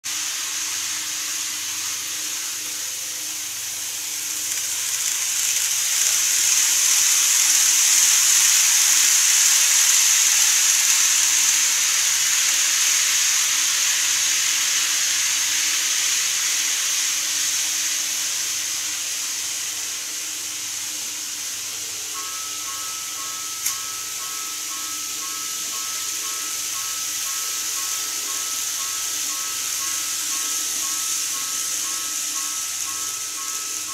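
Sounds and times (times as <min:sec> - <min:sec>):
model train whirring past: 0:00.0 - 0:33.9.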